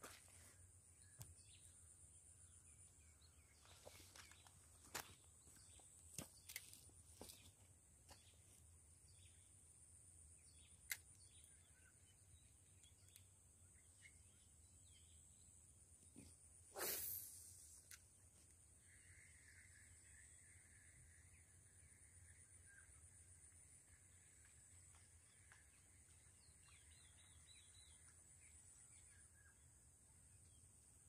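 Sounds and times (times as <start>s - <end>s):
steady high hiss: 16.7s - 18.0s
brief swish: 16.8s - 17.6s.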